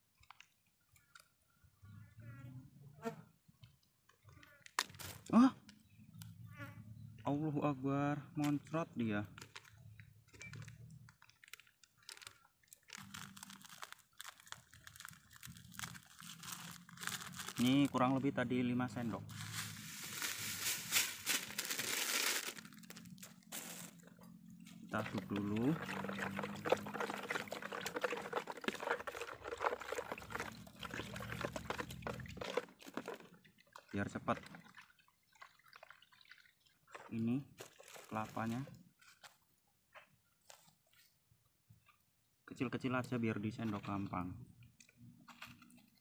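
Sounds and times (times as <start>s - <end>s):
plastic sachets crinkling: 10.4s - 18.1s, 19.2s - 24.0s
liquid sloshing: 19.3s - 38.6s
spoon clinking and scraping basin: 23.8s - 33.2s.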